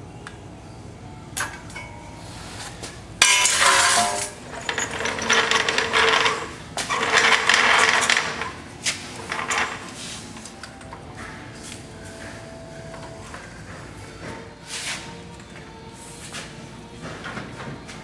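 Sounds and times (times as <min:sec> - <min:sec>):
metal clinking and rasping: 0:03.2 - 0:11.0.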